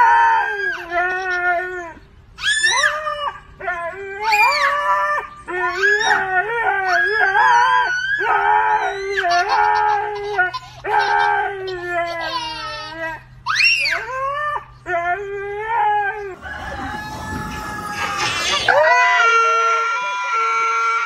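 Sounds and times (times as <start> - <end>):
husky howling: 13.6 - 21.0.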